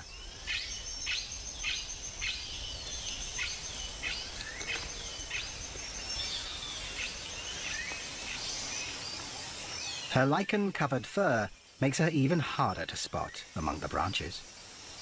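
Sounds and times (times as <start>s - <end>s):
bird chirping: 0.0s - 15.0s
high insect whine: 0.0s - 15.0s.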